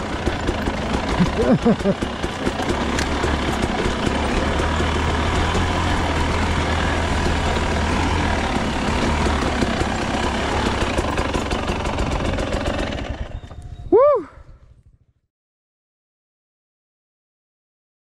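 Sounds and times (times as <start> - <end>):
clatter from rough ground: 0.0 - 13.8
dirt bike engine at low revs: 0.0 - 15.2.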